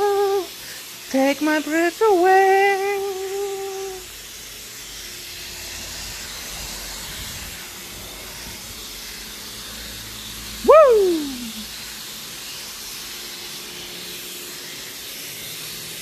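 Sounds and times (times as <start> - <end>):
pressure washer spraying water: 0.0 - 16.0
person singing held note: 10.7 - 11.6.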